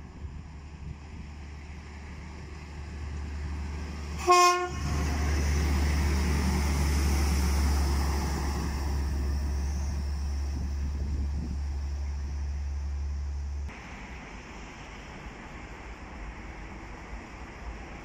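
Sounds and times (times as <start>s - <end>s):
rail vehicle rumbling past: 0.0s - 18.0s
rail vehicle horn blast: 4.2s - 5.2s.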